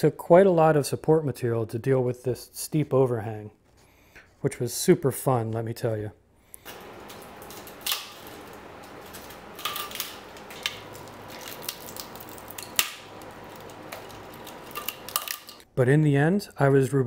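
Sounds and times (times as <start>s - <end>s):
plastic snapping: 6.6s - 15.6s.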